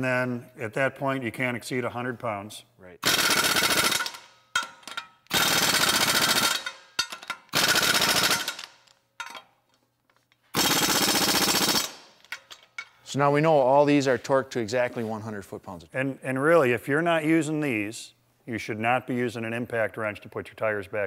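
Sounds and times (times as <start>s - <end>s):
air impact wrench hammering: 3.0s - 9.4s, 10.6s - 12.9s.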